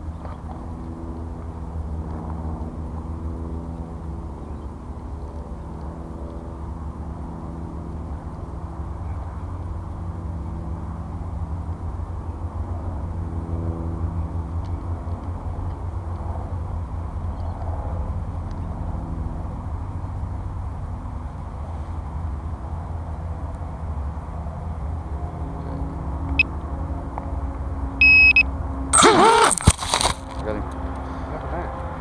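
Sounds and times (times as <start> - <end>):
quadcopter motors humming: 27.2 - 32.0.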